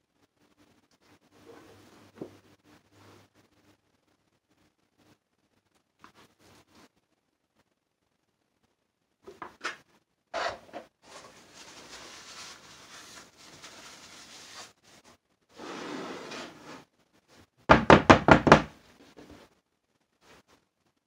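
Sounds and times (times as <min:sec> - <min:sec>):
rustling: 0:11.0 - 0:17.5
mold sliding across counter: 0:15.5 - 0:16.9.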